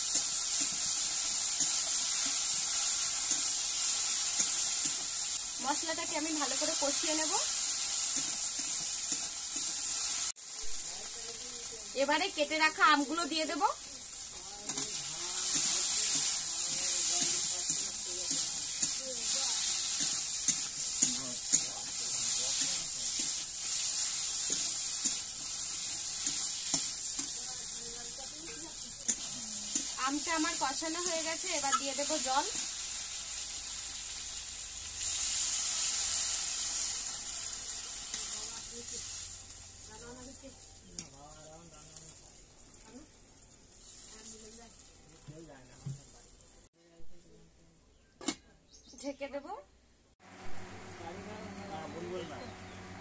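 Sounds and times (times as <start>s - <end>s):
food sizzling in hot oil: 0.0s - 46.7s, 50.2s - 53.0s.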